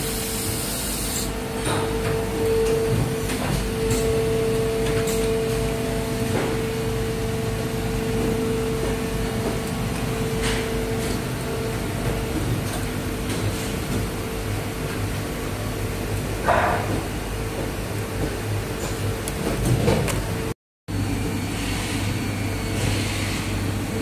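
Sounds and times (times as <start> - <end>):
machine humming: 0.0 - 16.5.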